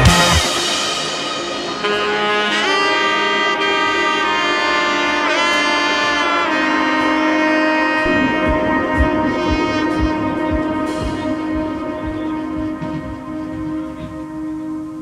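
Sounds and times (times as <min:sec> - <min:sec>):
melody of long held notes: 0:00.0 - 0:15.0
low drum beat: 0:08.0 - 0:14.5.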